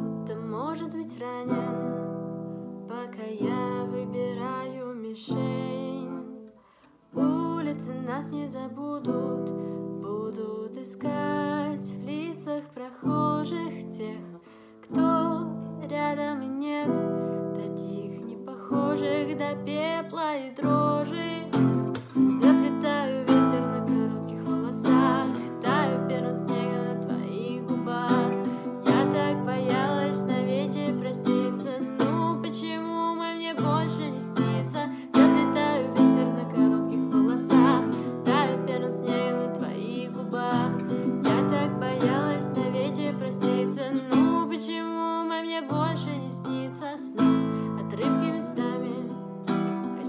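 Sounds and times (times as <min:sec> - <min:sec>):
woman singing: 0:00.0 - 0:50.0
acoustic guitar strumming: 0:20.6 - 0:44.6.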